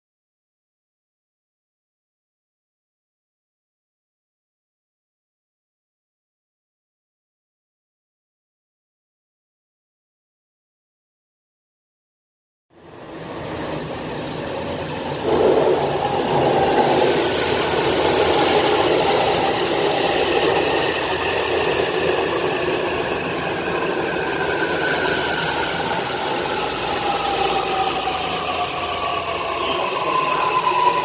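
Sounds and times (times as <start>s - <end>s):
subway train running: 12.7s - 31.0s.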